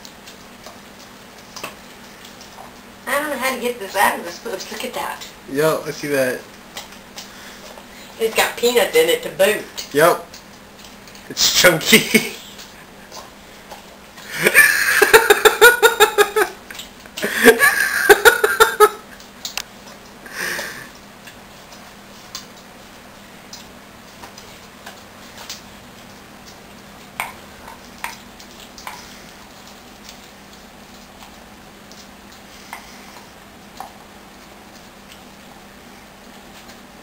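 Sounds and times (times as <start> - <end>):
person laughing: 11.8 - 12.9, 14.2 - 19.1.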